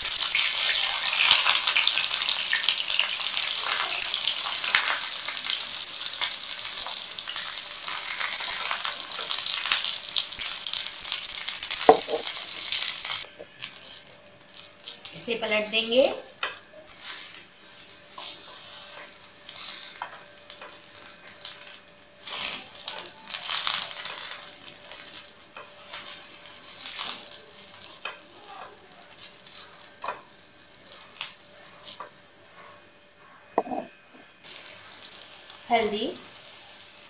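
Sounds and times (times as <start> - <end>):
eggplant slices sizzling in oil: 0.0 - 37.0
spatula scraping and tapping pan: 18.1 - 20.8, 29.2 - 30.4, 33.5 - 33.9.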